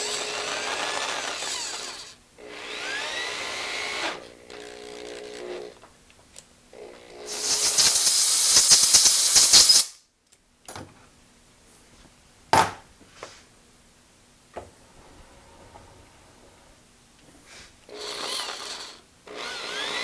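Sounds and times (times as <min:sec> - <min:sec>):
compressed air blow gun hissing: 0:07.3 - 0:09.9.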